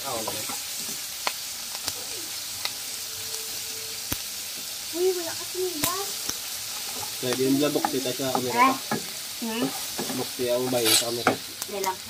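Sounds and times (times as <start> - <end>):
frying sizzle: 0.0 - 12.0
crab shells scraping a pan: 6.0 - 11.7
spatula squeaky scrapes: 10.7 - 11.2.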